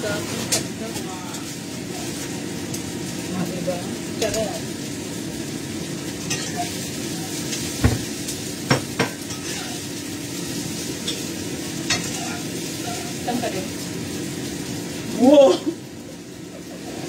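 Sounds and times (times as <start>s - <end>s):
food sizzling in a wok: 0.0s - 17.0s
utensil knocking against wok: 8.7s - 9.2s
spatula stirring and tossing: 8.8s - 10.0s, 10.6s - 13.5s.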